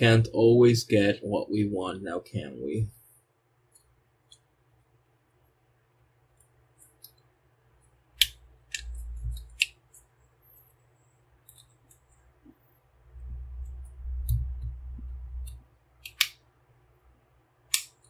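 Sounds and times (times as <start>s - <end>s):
plastic toy parts clicking: 8.2s - 10.0s, 11.4s - 12.1s, 15.4s - 16.4s
low handling rumble: 13.1s - 15.6s.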